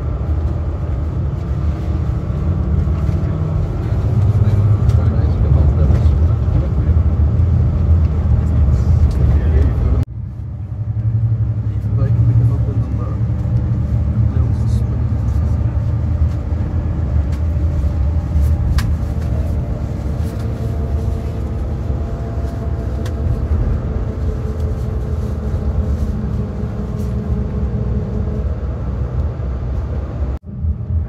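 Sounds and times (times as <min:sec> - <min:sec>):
bus engine and tyre rumble: 0:00.0 - 0:31.0.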